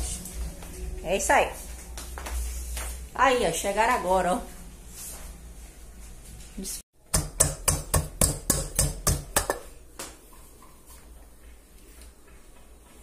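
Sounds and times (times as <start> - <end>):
wooden pestle pounding in mortar: 7.0 - 9.7.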